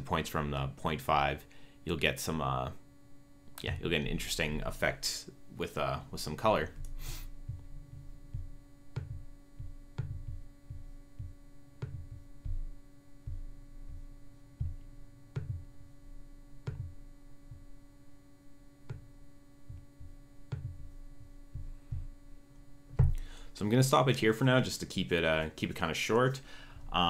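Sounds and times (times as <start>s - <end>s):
steady electrical hum: 0.0s - 27.0s
soft low thumps with clicks: 3.5s - 24.4s.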